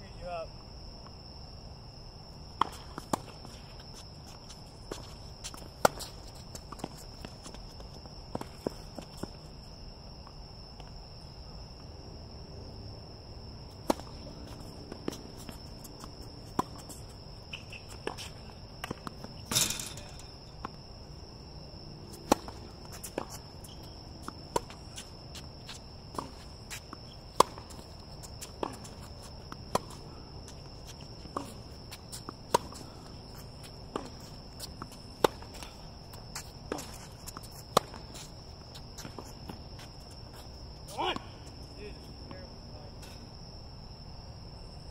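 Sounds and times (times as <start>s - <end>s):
high insect trill: 0.0s - 44.9s
tennis ball off racket strings: 18.8s - 20.7s.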